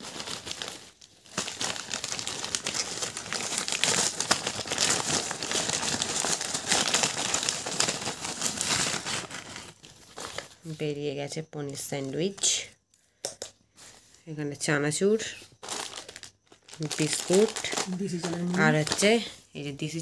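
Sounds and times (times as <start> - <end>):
paper packet crinkling: 0.0 - 10.8, 15.2 - 20.0.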